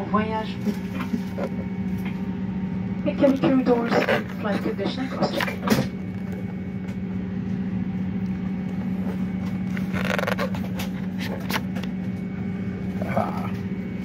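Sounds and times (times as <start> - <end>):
airliner cabin hum: 0.0 - 14.0
paper pages rustling: 9.5 - 11.8.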